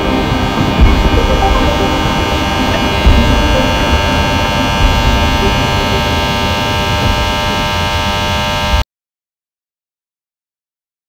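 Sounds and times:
drone of held tones: 0.0 - 8.8
low rumbling noise: 0.0 - 8.8.

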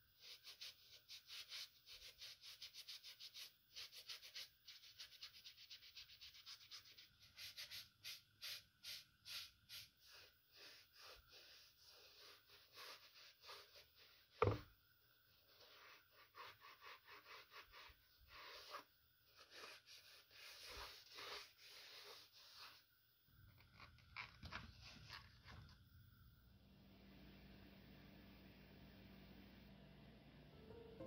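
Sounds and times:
sponge scrubbing sneaker sole: 0.2 - 14.7, 15.5 - 22.8.

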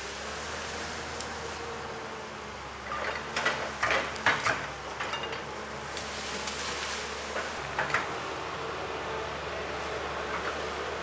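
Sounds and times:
excavator diesel engine running: 0.0 - 11.0
sharp cracks and knocks: 3.3 - 6.8.

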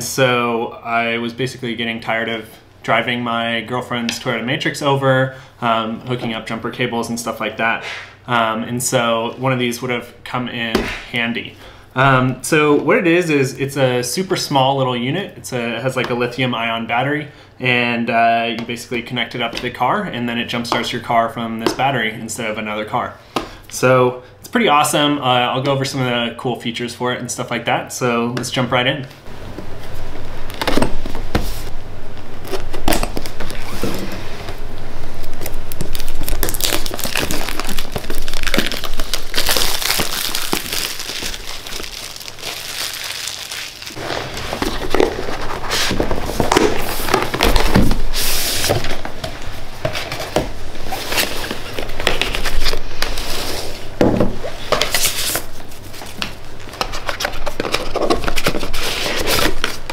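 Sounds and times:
packaging crinkling and rustling: 35.2 - 53.8, 54.6 - 59.9.

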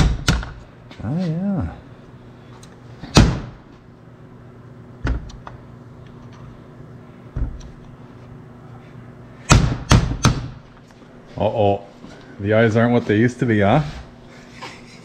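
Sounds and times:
hammer striking steel punch: 0.0 - 0.6, 9.5 - 10.6.

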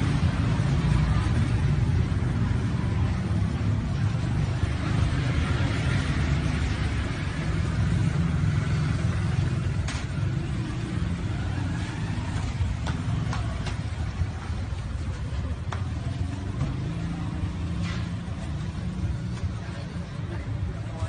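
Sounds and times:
motor scooters passing: 0.0 - 21.0.

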